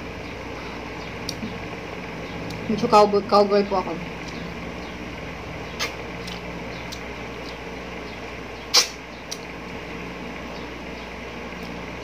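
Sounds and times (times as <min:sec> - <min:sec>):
low hum: 0:00.0 - 0:12.0
mouth clicks chewing: 0:05.7 - 0:07.6
loud lip smack: 0:05.8 - 0:06.4, 0:08.7 - 0:09.4.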